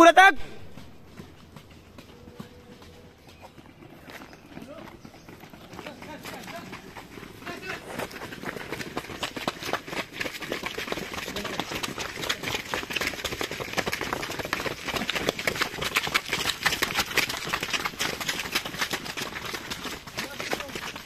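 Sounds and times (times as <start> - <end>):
footsteps on stone steps: 0.4 - 21.0.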